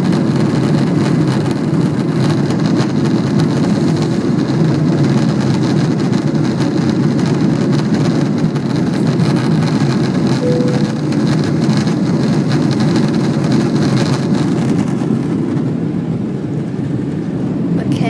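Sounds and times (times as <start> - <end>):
aircraft engine drone: 10.4 - 12.6.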